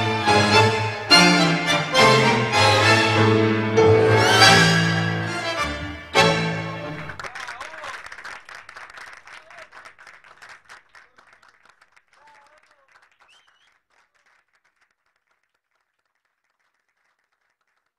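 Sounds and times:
audience applauding: 4.3s - 17.9s.

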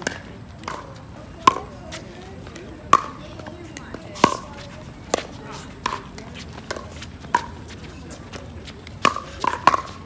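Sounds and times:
paddles hitting plastic ball: 8.3s - 10.0s.

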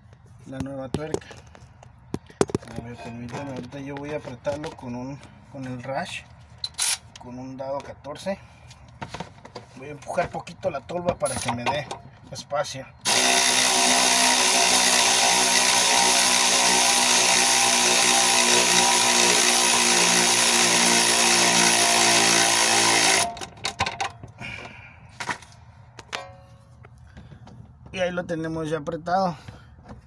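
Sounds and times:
electric ratchet running: 13.0s - 23.6s.

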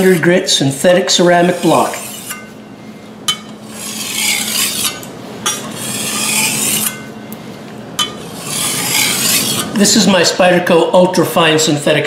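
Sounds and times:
blade scraping on sharpening plate: 1.4s - 2.6s, 3.3s - 7.1s, 8.0s - 9.8s.

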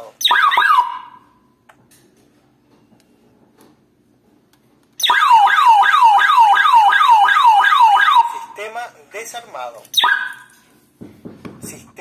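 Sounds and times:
alarm siren wailing: 0.2s - 1.3s, 5.0s - 8.5s, 10.0s - 10.5s.

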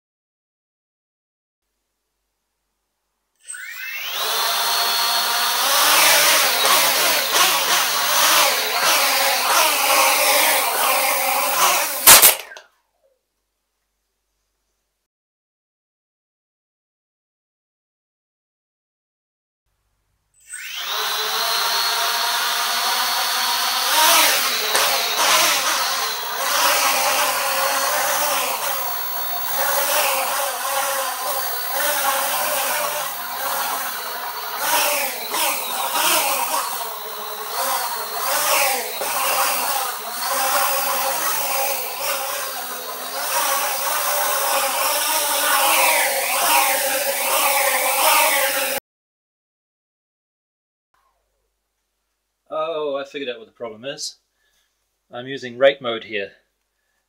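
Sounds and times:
quadcopter motors buzzing whine: 3.4s - 12.6s, 20.4s - 48.8s.

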